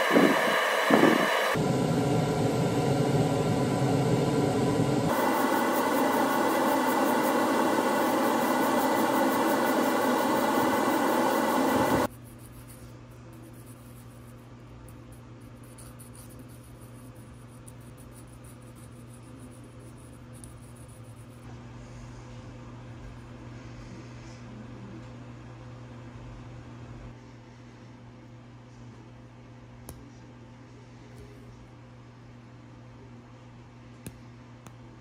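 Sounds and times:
airbrush hissing: 0.0s - 12.7s
extraction fan running: 0.0s - 29.6s
steady low hum: 0.0s - 35.0s.

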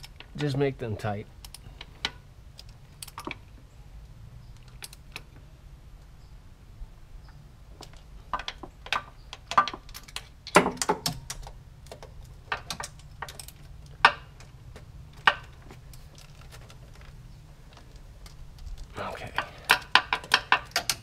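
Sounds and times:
clicks and knocks in engine bay: 7.8s - 17.1s, 19.3s - 21.0s.

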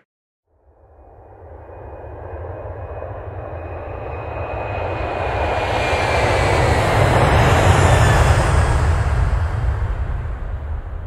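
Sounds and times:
fighter jet engines roaring: 1.2s - 11.0s.

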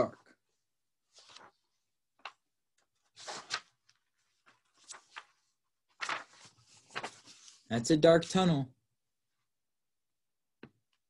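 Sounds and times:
book pages rustling: 1.0s - 7.7s.

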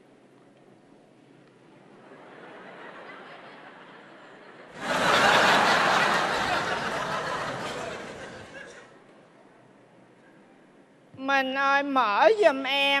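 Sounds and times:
audience laughter: 2.0s - 8.9s.

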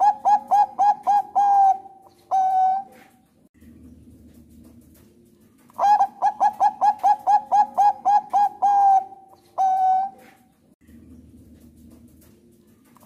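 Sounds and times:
dove cooing: 0.0s - 3.2s, 5.8s - 10.5s.

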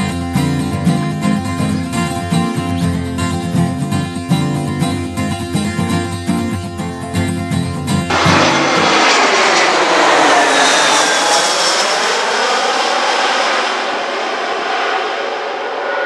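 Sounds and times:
jet aircraft roaring overhead: 8.1s - 16.0s.

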